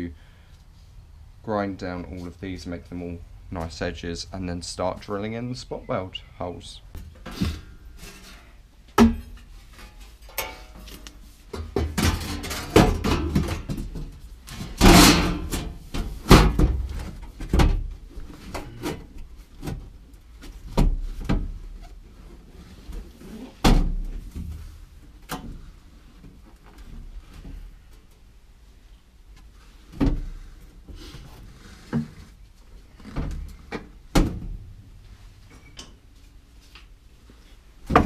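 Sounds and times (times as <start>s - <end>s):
sheet metal knocks and clanks: 9.0s - 11.0s, 11.6s - 17.8s
metal scraping rattle: 9.7s - 11.1s.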